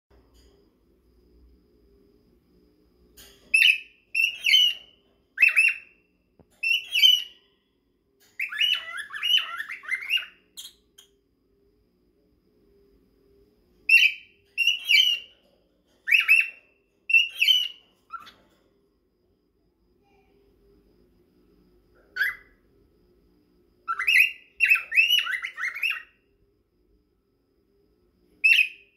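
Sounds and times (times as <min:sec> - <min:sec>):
cockatiels chirping: 0:03.6 - 0:05.9, 0:06.6 - 0:07.4, 0:08.4 - 0:10.8, 0:13.9 - 0:15.3, 0:16.1 - 0:18.4, 0:22.2 - 0:22.5, 0:23.9 - 0:26.1.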